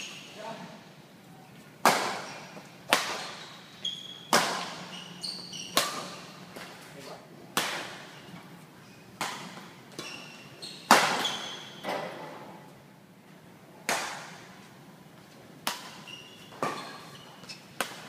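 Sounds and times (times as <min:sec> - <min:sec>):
shoes squeaking on court: 0:00.0 - 0:00.4, 0:01.4 - 0:07.0, 0:08.0 - 0:12.3, 0:15.8 - 0:18.0
racket striking shuttlecock: 0:01.8 - 0:02.3, 0:02.9 - 0:03.4, 0:04.3 - 0:04.9, 0:05.7 - 0:06.2, 0:07.6 - 0:08.1, 0:09.2 - 0:10.0, 0:13.9 - 0:14.4, 0:15.6 - 0:16.0.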